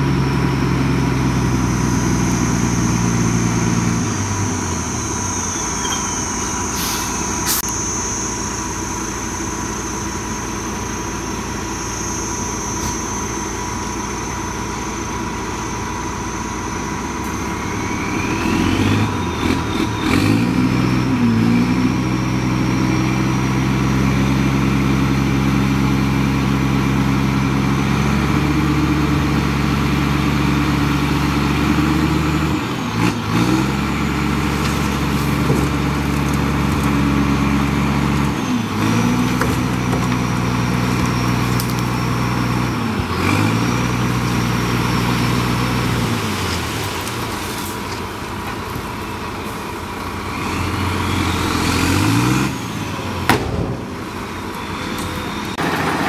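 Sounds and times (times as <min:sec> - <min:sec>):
diesel engine under load: 0:00.0 - 0:56.0
thin high whine: 0:01.8 - 0:18.2.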